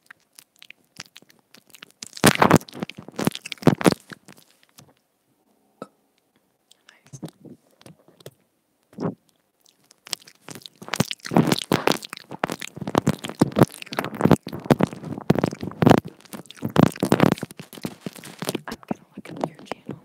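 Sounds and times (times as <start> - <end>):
teeth biting earbud microphone: 0.0 - 4.8, 8.9 - 20.0
crunchy clicks and thumps: 0.0 - 5.0, 7.0 - 20.0.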